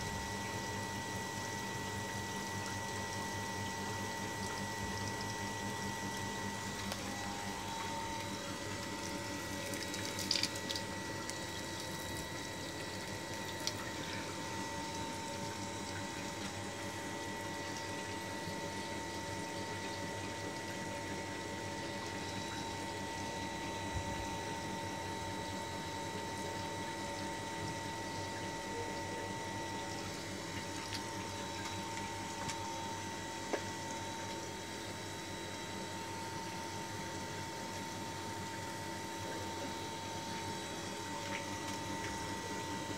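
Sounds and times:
steady hum: 0.0s - 42.9s
water gushing onto tiled floor: 8.8s - 12.3s.

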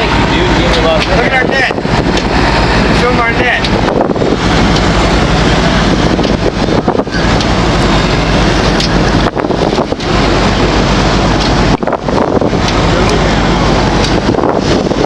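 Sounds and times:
boat engine running: 0.0s - 15.0s
wind buffeting microphone: 0.0s - 15.0s.

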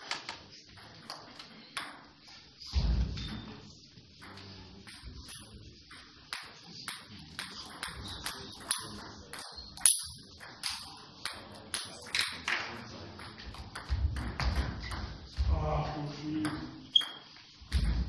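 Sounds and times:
table tennis balls clicking: 0.0s - 2.2s, 4.2s - 15.4s.

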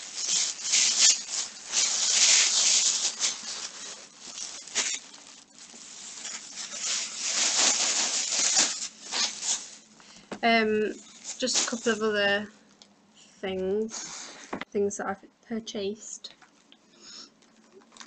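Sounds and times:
rustling and crinkling of bags: 0.0s - 12.4s, 16.4s - 18.0s.

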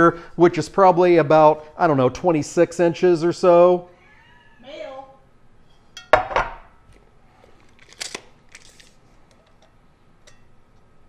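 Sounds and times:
skillet set down with knock: 6.1s - 6.7s.

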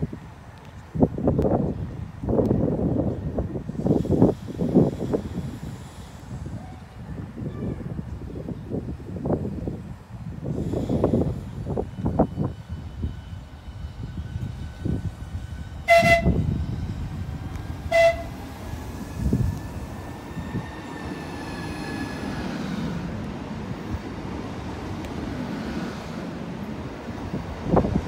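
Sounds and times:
wheels rumbling on rail: 0.0s - 28.0s
train whistle toots: 15.8s - 16.5s, 17.8s - 18.6s.

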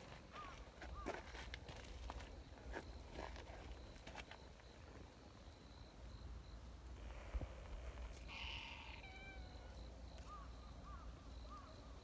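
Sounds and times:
faint chirping calls: 8.1s - 12.0s
cat meowing: 8.3s - 9.7s.

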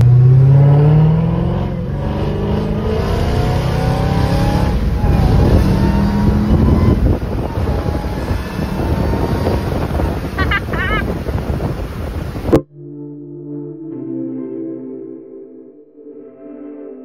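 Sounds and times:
car engine accelerating: 0.0s - 12.6s
road noise: 0.0s - 12.6s.

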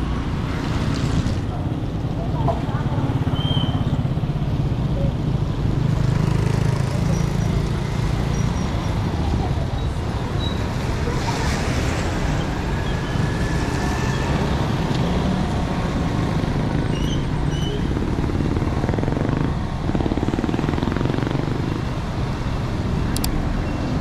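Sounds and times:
traffic on wet street: 0.0s - 24.0s
vehicle passing alongside: 5.8s - 22.8s.

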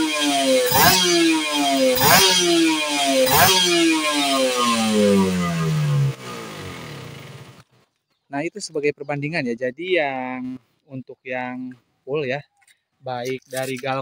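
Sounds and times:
motorcycle engine revving: 0.0s - 7.7s.

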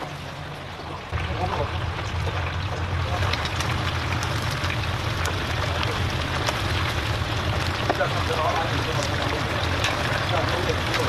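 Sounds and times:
hot oil sizzling and bubbling: 0.0s - 11.0s.

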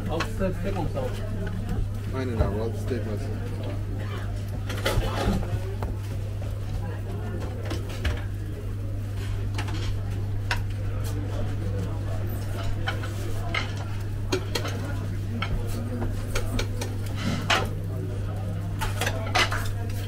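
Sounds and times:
plates and metal skewers clinking: 18.8s - 20.0s.

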